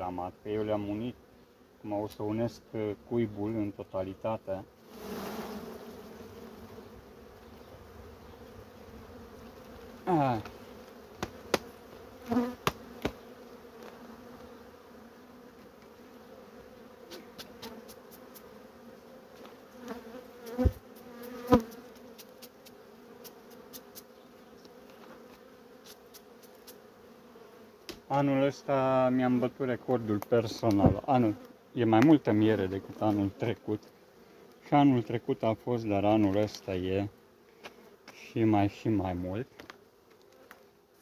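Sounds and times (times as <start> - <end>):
honeybees buzzing: 0.0 - 41.0.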